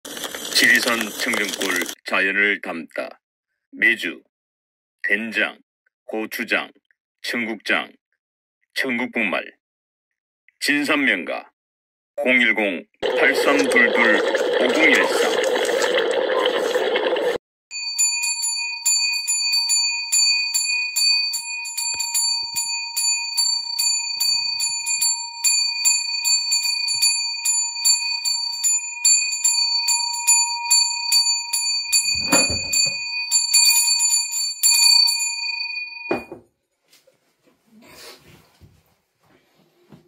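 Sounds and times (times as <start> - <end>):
handbell ringing rapidly: 17.8 - 36.1.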